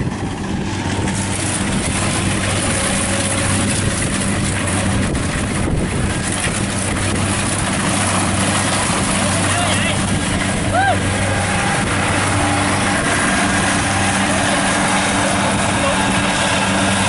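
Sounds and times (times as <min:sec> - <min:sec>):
diesel engine humming: 0:00.0 - 0:17.0
harvester machinery clattering: 0:00.0 - 0:17.0.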